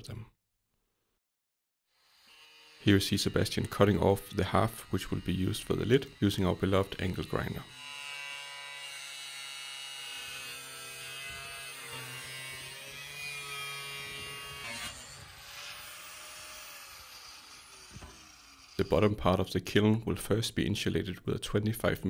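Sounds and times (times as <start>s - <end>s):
angle grinder cutting steel: 1.9s - 19.2s.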